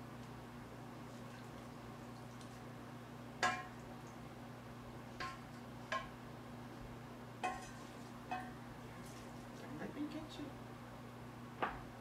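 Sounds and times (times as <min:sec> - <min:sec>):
kitchenware clinking on metal and glass: 0:07.4 - 0:08.6.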